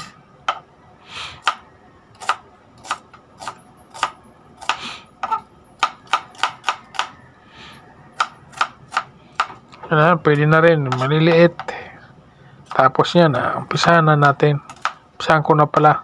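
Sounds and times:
knife chopping on wooden board: 2.2s - 7.2s, 10.9s - 11.7s, 13.8s - 15.0s.

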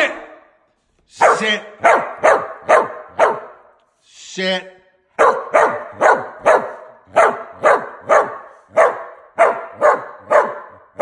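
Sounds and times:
dog barking: 1.2s - 3.7s, 5.2s - 11.0s.

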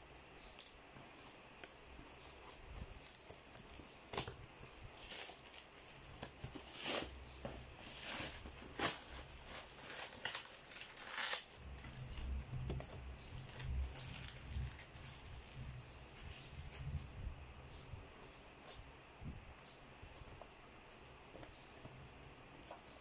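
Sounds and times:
cardboard parcel crinkling: 0.1s - 16.9s.

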